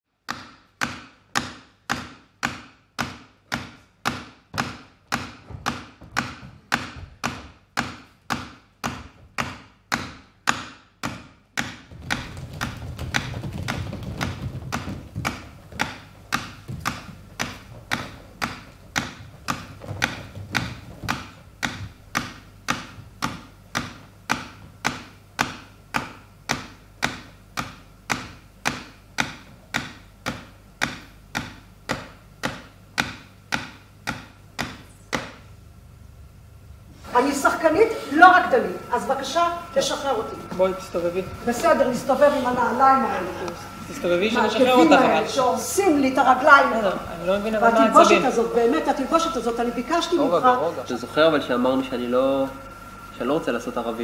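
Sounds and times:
low hum: 0:34.8 - 0:54.0.

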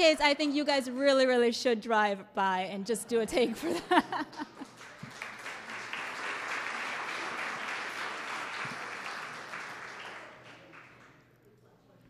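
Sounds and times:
audience applauding: 0:04.4 - 0:11.4.

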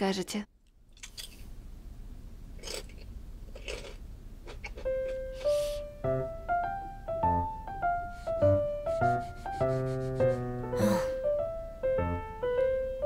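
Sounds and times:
gentle piano melody: 0:04.8 - 0:13.0.

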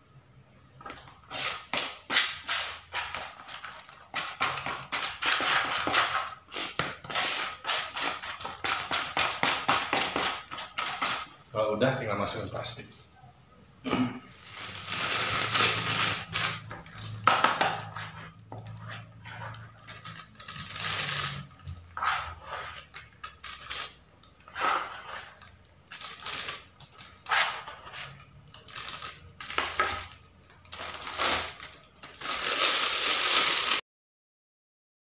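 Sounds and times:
spoon scraping plastic bowl: 0:00.9 - 0:11.4, 0:14.6 - 0:33.0
plastic bag rustling: 0:14.3 - 0:33.8.

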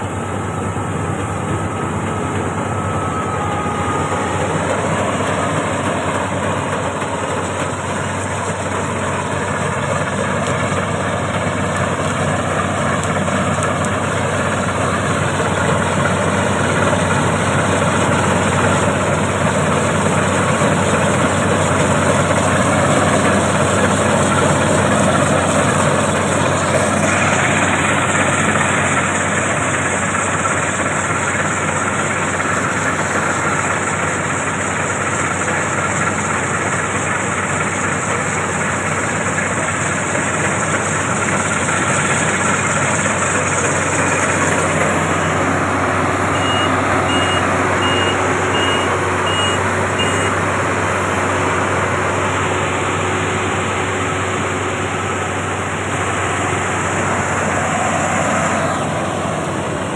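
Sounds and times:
combine harvester running: 0:00.0 - 0:59.9
short high beeps: 0:46.3 - 0:50.4.

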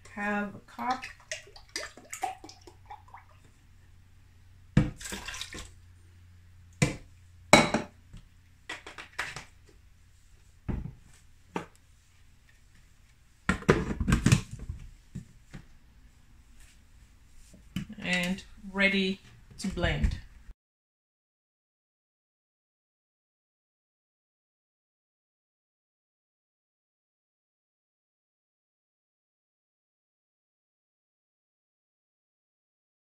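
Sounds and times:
milk pouring: 0:00.8 - 0:03.6, 0:04.9 - 0:05.8
cups knocking on countertop: 0:07.6 - 0:07.9.

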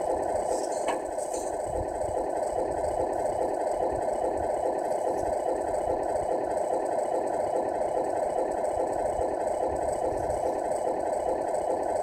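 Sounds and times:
simulated diesel engine idling: 0:00.0 - 0:12.0.

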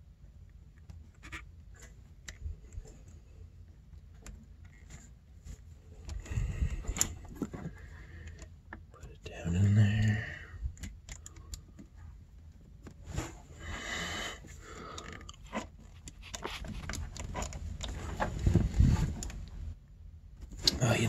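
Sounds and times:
small clicks taps and scrapes: 0:00.4 - 0:09.2, 0:10.7 - 0:13.0, 0:14.8 - 0:19.6.

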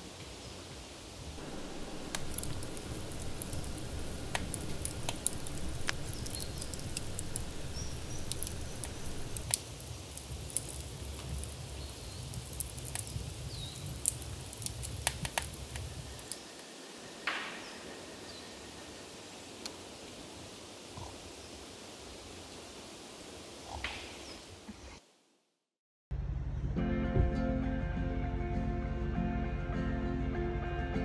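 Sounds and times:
low steady rumble: 0:01.3 - 0:09.5
campfire crackling and popping: 0:01.3 - 0:16.6.

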